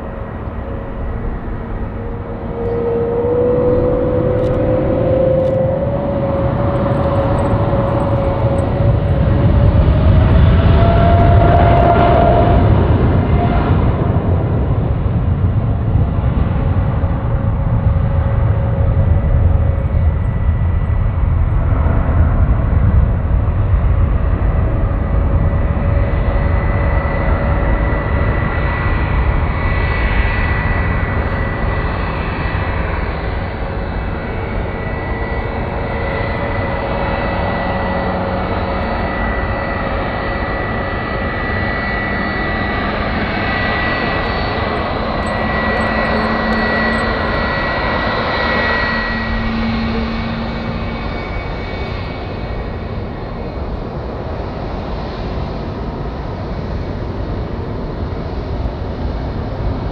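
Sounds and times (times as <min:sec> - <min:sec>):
jet engine whine: 0:00.0 - 0:59.9
jet engines rumbling: 0:00.0 - 0:59.9.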